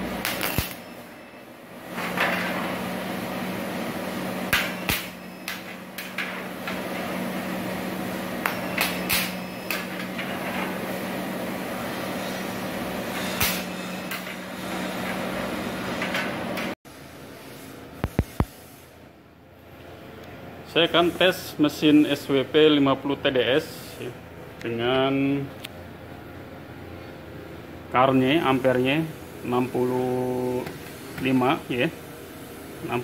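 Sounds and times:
spot welder humming: 0.0s - 19.0s.

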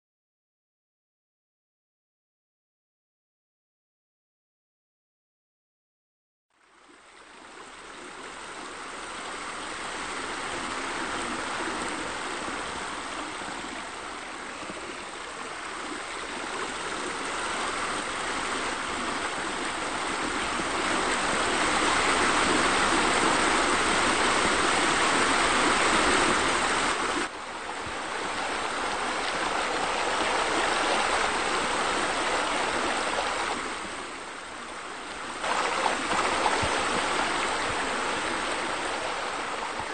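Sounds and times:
running water rushing: 6.6s - 39.9s.

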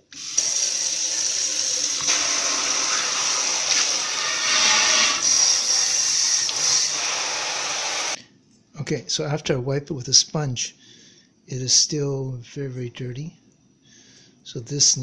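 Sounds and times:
faucet water splashing into sink: 0.1s - 8.2s.

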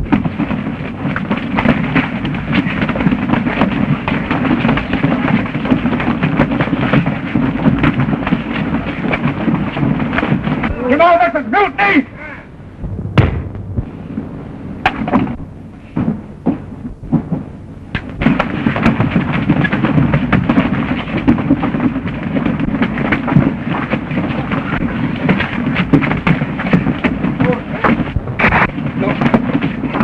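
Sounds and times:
sharp blows: 11.5s - 15.9s.

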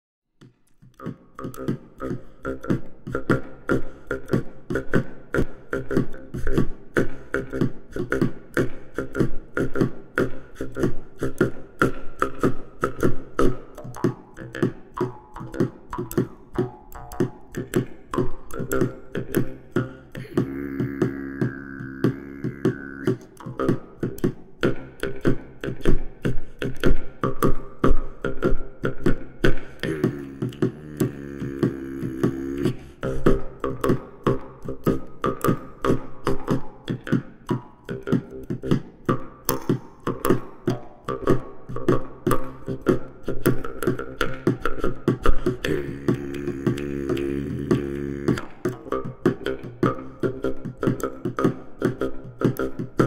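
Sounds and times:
pitched humming tone: 18.5s - 23.6s, 29.8s - 33.2s, 45.6s - 49.0s.

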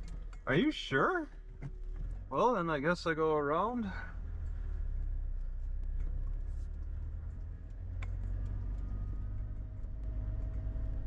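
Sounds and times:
car interior engine and tyre rumble: 0.0s - 11.0s.

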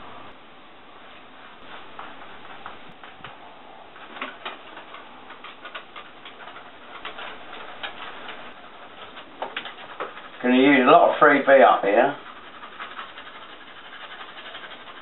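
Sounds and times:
pencil scratching on wall: 4.0s - 15.0s.

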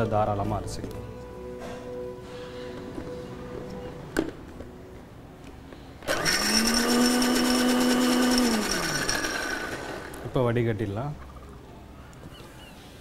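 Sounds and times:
mixer grinder motor whine: 6.0s - 10.4s.

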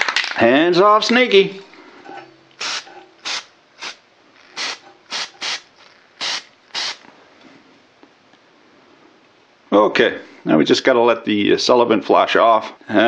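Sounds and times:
aerosol spray hissing bursts: 2.6s - 4.0s, 4.6s - 7.0s.

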